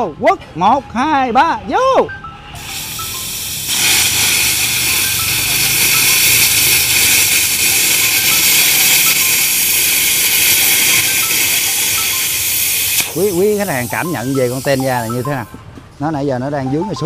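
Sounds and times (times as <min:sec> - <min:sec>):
plasma cutter hissing: 0:02.6 - 0:15.5.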